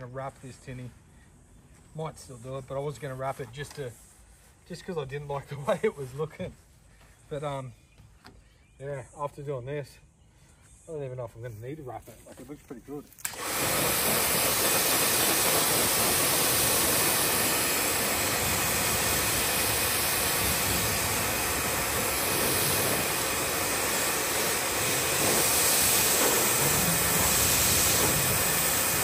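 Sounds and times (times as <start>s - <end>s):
pressure washer running: 13.2s - 29.0s
water jet spraying on metal hull: 13.2s - 29.0s.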